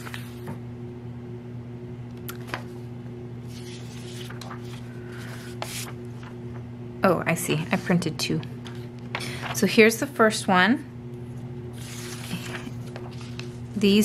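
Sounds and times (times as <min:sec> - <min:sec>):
low electrical hum: 0:00.0 - 0:14.0
paper rustling: 0:03.4 - 0:06.4, 0:11.7 - 0:13.8.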